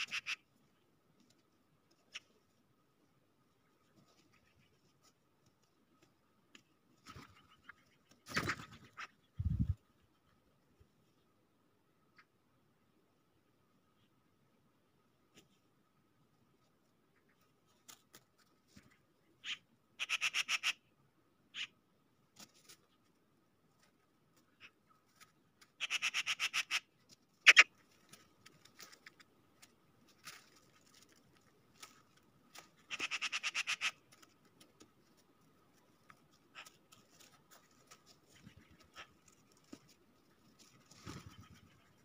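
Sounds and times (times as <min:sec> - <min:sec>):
magpies chattering: 0:00.0 - 0:00.5, 0:19.4 - 0:20.8, 0:25.8 - 0:27.7, 0:32.8 - 0:34.0
birds pecking on snow: 0:00.0 - 0:42.0.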